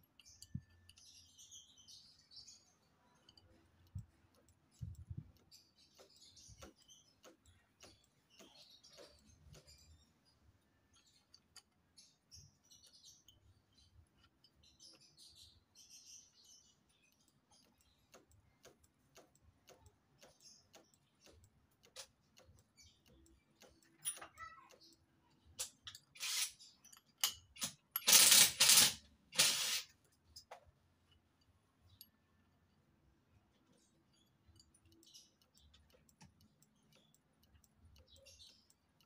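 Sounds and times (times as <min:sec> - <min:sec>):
small metallic clicks: 0:00.0 - 0:39.0
loud rattling bursts: 0:27.6 - 0:29.9.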